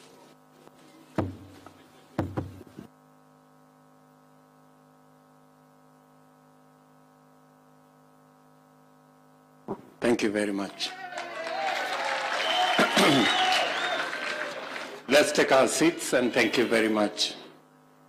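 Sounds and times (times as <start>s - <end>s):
faint steady hum: 0.0s - 18.0s
dull knocks: 1.2s - 1.5s, 2.2s - 2.7s.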